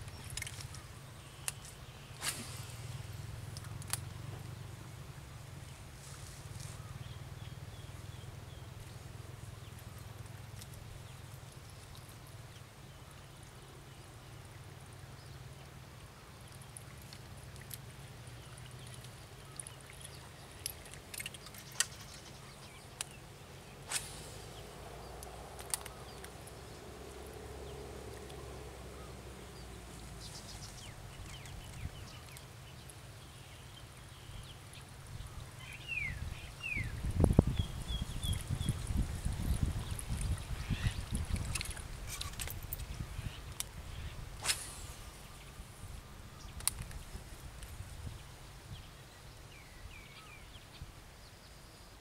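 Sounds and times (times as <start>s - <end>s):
faint clicks: 18.5s - 23.2s, 25.1s - 26.6s, 46.5s - 47.8s
low steady rumble: 22.1s - 46.6s.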